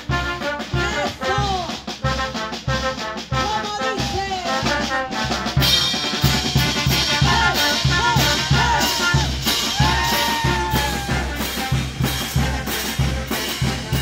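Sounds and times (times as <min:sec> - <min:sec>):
bass drum beat: 0:00.0 - 0:14.0
brass and saxophone melody: 0:00.0 - 0:14.0
cymbals and snare drum: 0:00.0 - 0:14.0.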